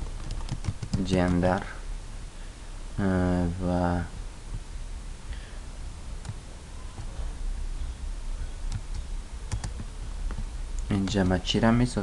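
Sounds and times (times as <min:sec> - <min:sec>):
low steady hum: 0:00.0 - 0:12.0
keyboard and mouse clicks: 0:00.2 - 0:01.4, 0:08.7 - 0:11.4.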